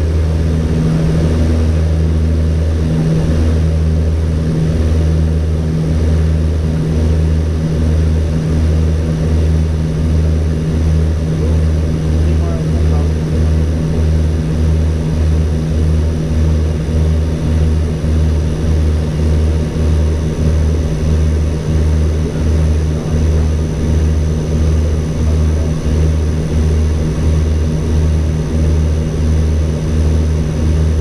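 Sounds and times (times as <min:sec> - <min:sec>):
turboprop engines droning: 0:00.0 - 0:31.0.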